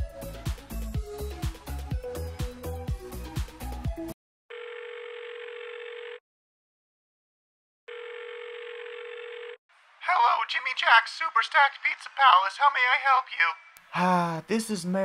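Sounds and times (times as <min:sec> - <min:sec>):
music with steady beat: 0:00.0 - 0:04.2
telephone ringback tone: 0:04.5 - 0:06.2, 0:07.9 - 0:09.6.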